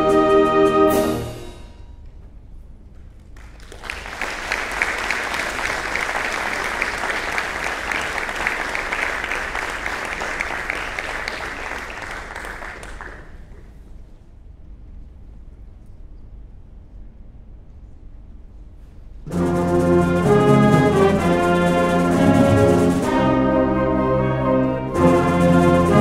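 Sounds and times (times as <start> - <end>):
audience applauding: 3.2 - 13.8, 19.4 - 23.5.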